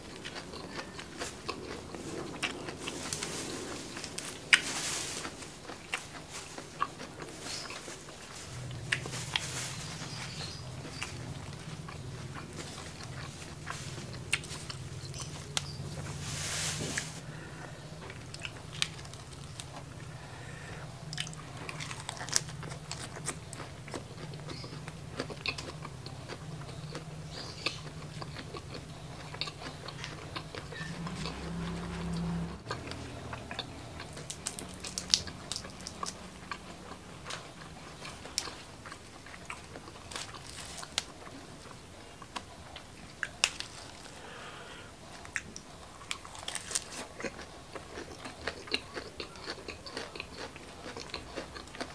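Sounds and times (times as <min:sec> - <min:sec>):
person chewing crunchy food: 0:00.0 - 0:16.2, 0:16.9 - 0:51.9.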